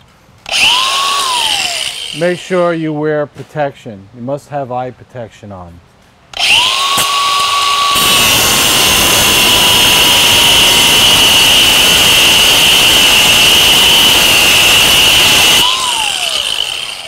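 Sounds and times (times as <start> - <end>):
angle grinder whine: 0.5 - 2.5, 6.4 - 17.0
grinding wheel rasping on metal: 6.4 - 17.0.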